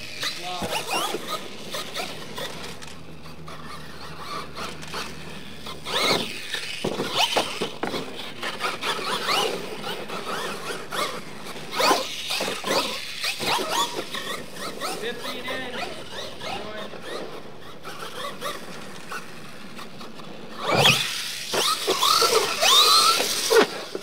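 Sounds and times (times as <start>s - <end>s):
electric motor whining: 0.0s - 24.0s
toy truck thumping on dirt: 5.9s - 8.2s.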